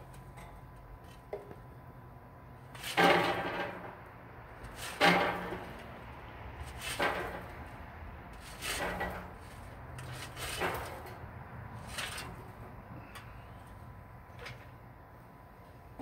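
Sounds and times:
charcoal clattering onto steel grate: 2.7s - 6.0s, 6.6s - 11.2s, 11.8s - 13.2s.

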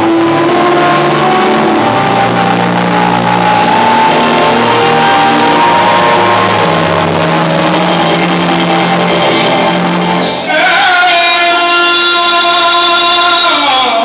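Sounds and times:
loud dance music over pa: 0.0s - 11.1s.

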